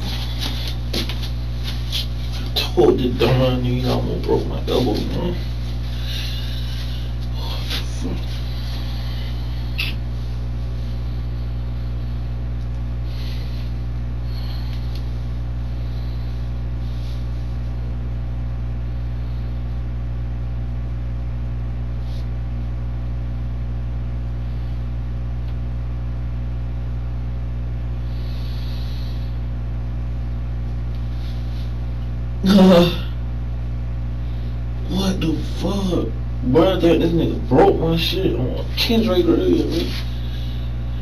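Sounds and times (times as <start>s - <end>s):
electrical mains hum: 0.0s - 41.0s.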